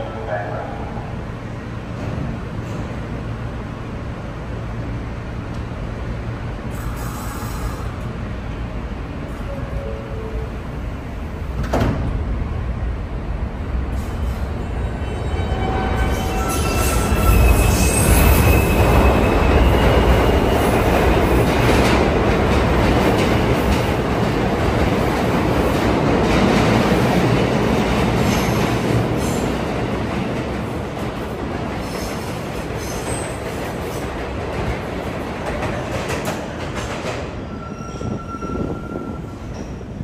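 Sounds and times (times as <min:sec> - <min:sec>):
train wheels rumbling on rail: 0:00.4 - 0:40.0
high wheel squeals: 0:37.4 - 0:39.8.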